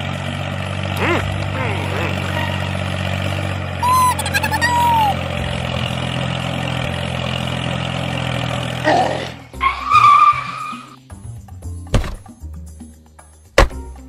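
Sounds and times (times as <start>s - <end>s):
tractor engine idling: 0.0s - 10.6s
high whistling chirp: 3.8s - 5.2s.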